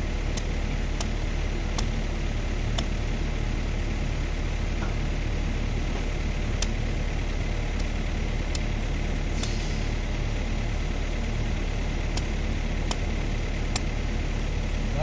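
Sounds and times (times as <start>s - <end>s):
low engine drone: 0.0s - 15.0s
machete chopping coconut husk: 0.2s - 2.0s, 2.7s - 3.1s, 12.0s - 14.0s
scraping hiss: 9.3s - 10.0s.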